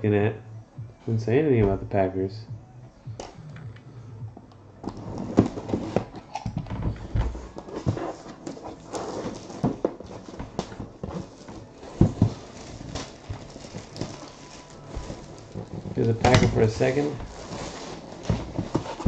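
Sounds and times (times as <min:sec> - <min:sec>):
plastic wrap crinkling and tearing: 0:08.4 - 0:19.0
cardboard box thumps: 0:09.2 - 0:14.2.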